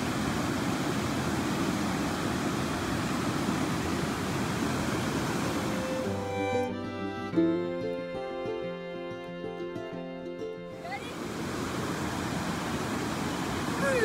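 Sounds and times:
creek water flowing over rock: 0.0 - 8.0, 10.7 - 14.0
music: 5.7 - 11.2.

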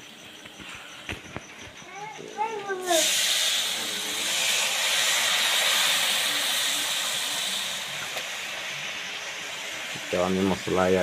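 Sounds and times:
spice paste sizzling in hot oil: 2.8 - 11.0.

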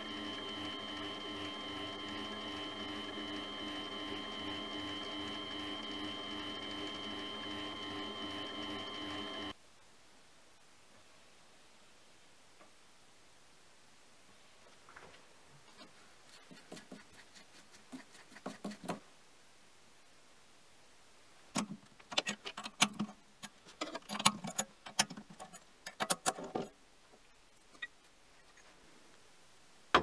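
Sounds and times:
metal casting clicks and knocks: 21.6 - 26.7.

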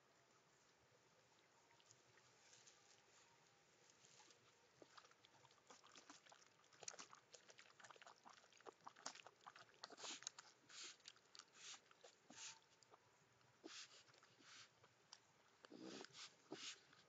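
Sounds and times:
raccoons splashing in water: 4.8 - 12.5
short noisy puffs: 15.8 - 16.9.

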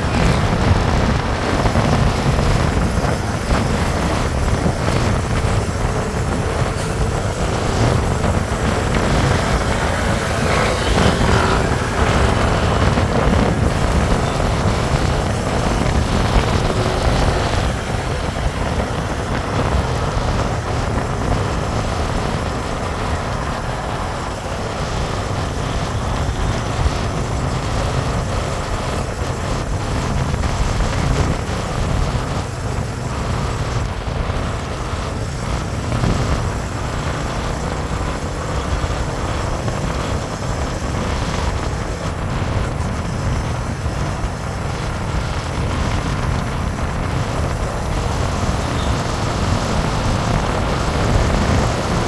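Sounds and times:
motorcycle engine cruising: 0.0 - 52.0
road noise: 0.0 - 52.0
wind buffeting microphone: 0.0 - 52.0.

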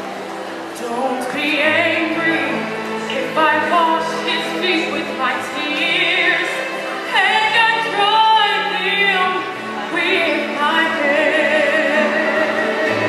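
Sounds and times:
woman singing into microphone: 0.7 - 13.0.

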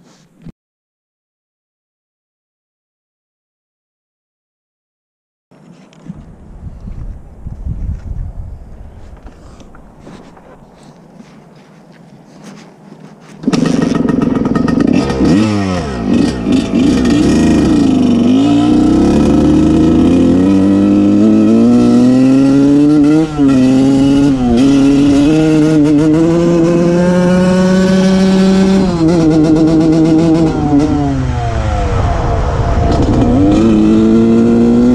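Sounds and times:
dirtbike engine revving: 13.4 - 34.9.

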